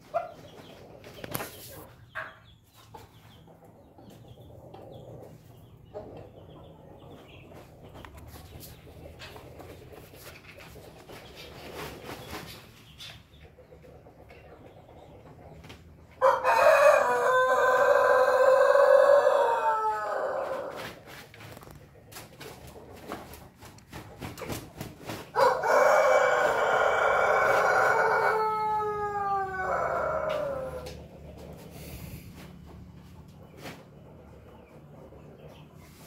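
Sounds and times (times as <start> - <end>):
rooster crowing: 16.2 - 20.8, 25.4 - 31.0.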